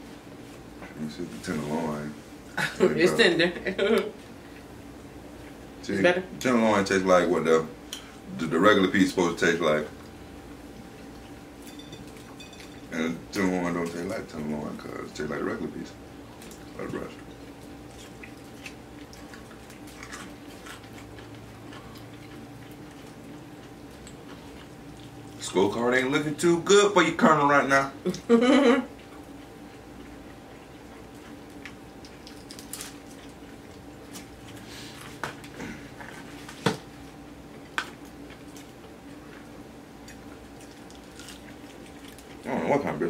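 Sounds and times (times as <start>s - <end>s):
faint steady hum: 0.0s - 43.0s
chewing and mouth clicks: 16.3s - 25.4s, 28.9s - 34.6s, 37.5s - 42.5s.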